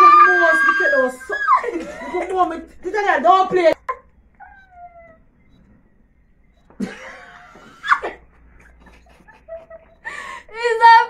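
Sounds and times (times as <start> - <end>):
shrill shriek: 0.0 - 1.7
women laughing: 0.6 - 2.7, 6.8 - 10.7.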